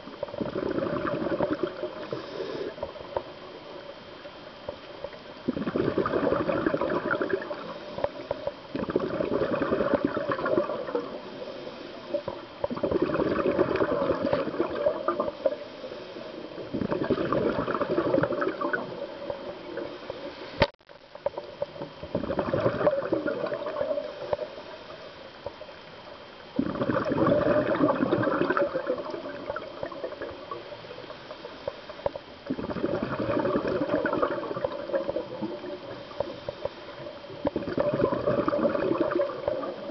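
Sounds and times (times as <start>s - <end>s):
diver regulator bubbling underwater: 0.0s - 3.5s, 5.4s - 11.5s, 12.1s - 15.6s, 16.5s - 20.0s, 21.8s - 24.6s, 26.6s - 30.8s, 32.4s - 39.9s
diver breathing: 2.0s - 2.9s.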